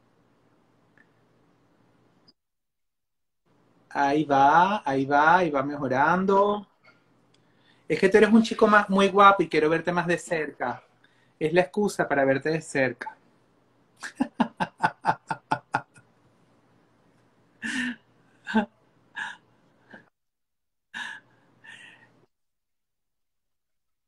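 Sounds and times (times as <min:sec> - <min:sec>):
men laughing: 0:14.0 - 0:16.0.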